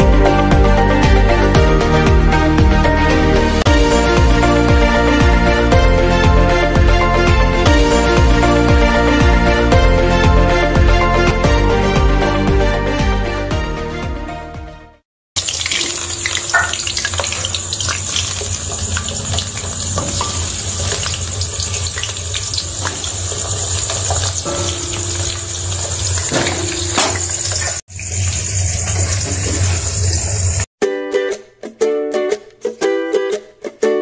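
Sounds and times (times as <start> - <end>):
potatoes sizzling in hot oil: 15.4 - 30.6.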